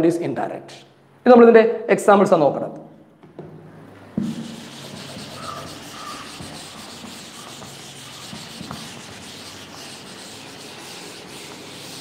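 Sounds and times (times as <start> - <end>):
eraser rubbing chalkboard: 4.2 - 12.0.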